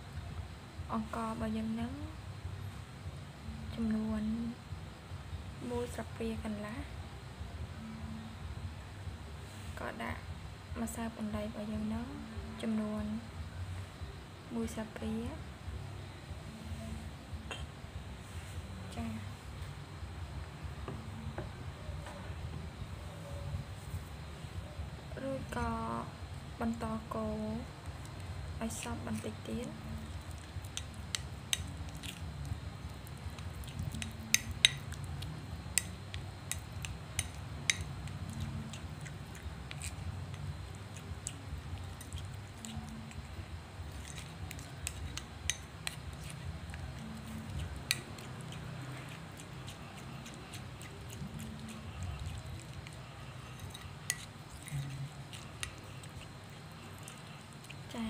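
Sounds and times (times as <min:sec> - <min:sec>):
metal utensil stirring thick paste: 0:50.5 - 0:56.2.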